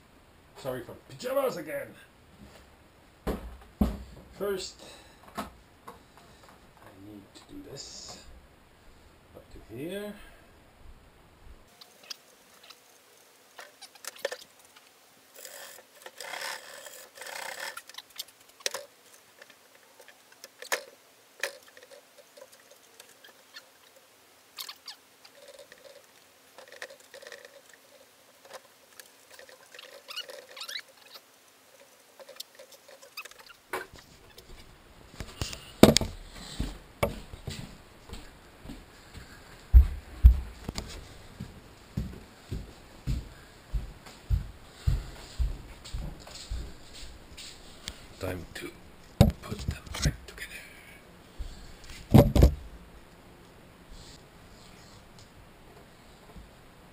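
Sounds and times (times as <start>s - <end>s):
soft rustling: 11.8s - 50.4s.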